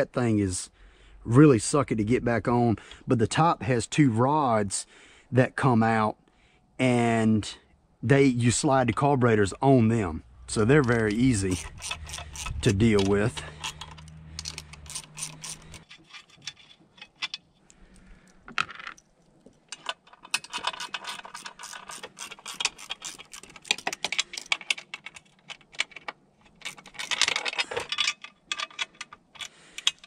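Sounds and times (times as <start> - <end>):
socket ratchet clicking: 10.5 - 16.2, 20.3 - 30.0.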